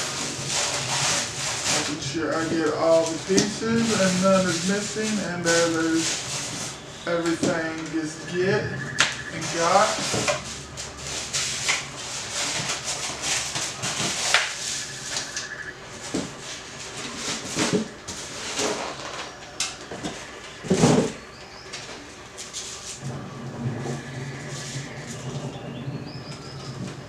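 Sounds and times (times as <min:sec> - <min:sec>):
plastic and tissue wrapping rustling: 0:00.0 - 0:08.4
styrofoam rubbing and squeaking: 0:00.0 - 0:19.4.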